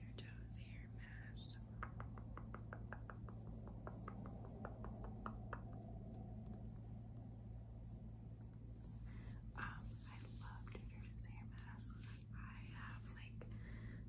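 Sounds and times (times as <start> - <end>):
low background hum: 0.0 - 14.0
fingernails tapping plastic tube: 1.8 - 6.8.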